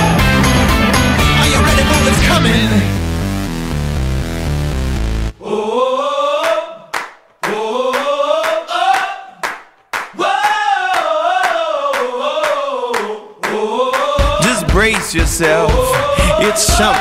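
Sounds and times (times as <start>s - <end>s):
wordless choir-like vocals: 5.4s - 9.4s, 10.2s - 17.0s
hand claps: 6.4s - 15.2s.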